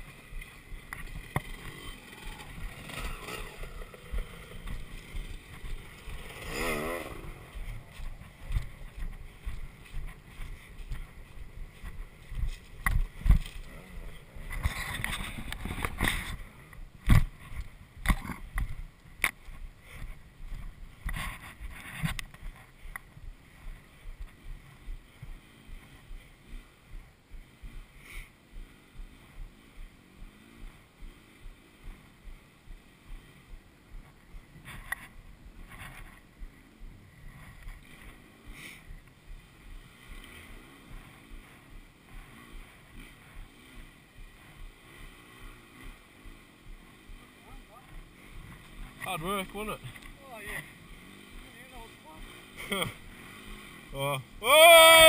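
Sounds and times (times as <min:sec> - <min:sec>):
bike knocking and rattling: 0:00.0 - 0:26.2
motorcycle engine: 0:00.0 - 0:55.0.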